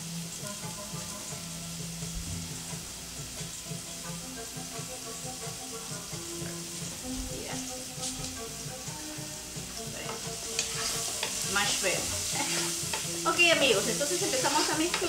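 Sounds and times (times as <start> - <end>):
onion sizzling in oil: 0.0 - 15.0
wooden spoon scraping a pan: 10.0 - 15.0.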